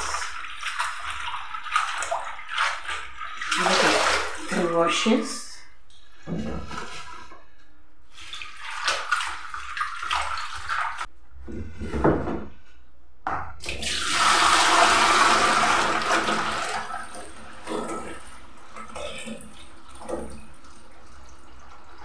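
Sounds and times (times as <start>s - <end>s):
water pouring into steel sink: 13.6s - 22.0s.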